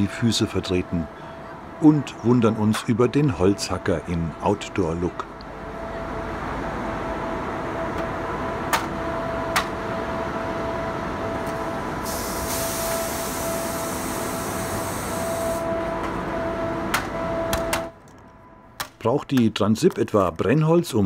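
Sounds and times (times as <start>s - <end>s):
electric locomotive humming: 0.0s - 18.8s
hiss: 12.0s - 15.6s.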